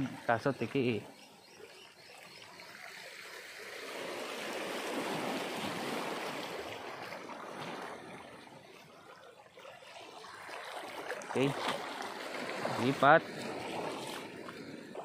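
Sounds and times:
small waves washing over rocks: 0:03.1 - 0:15.0.

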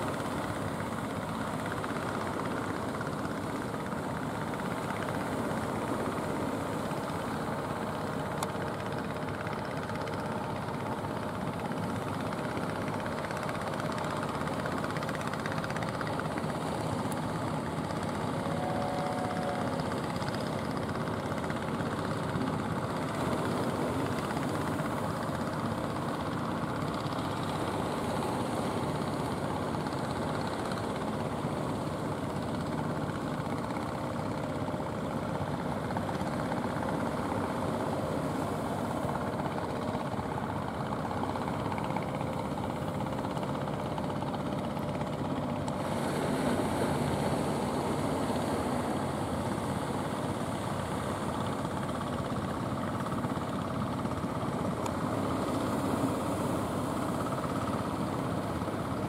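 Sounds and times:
boat engine droning: 0:00.0 - 0:59.0.

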